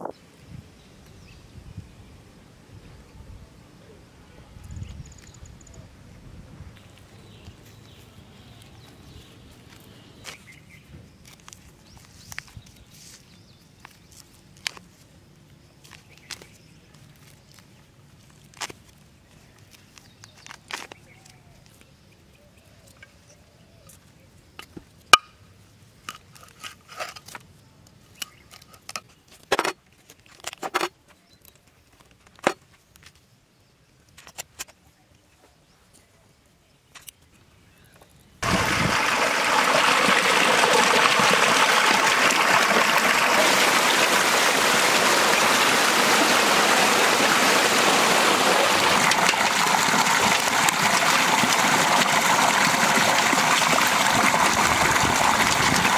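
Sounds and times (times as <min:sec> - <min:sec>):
water gushing from pipe: 0:38.4 - 0:55.9.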